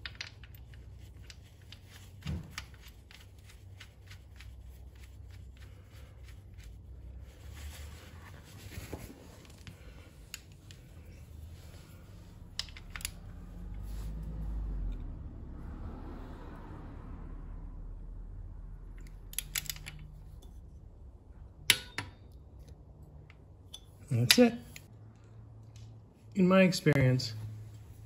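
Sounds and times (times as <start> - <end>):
hands rubbing and handling: 0.0 - 14.4.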